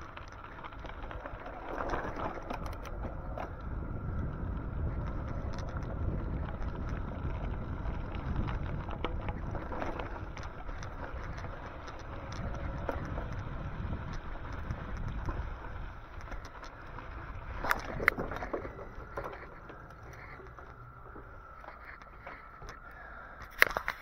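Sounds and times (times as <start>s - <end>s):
small clicks and rattles: 0.0s - 24.0s
wind rushing over microphone: 1.2s - 22.8s.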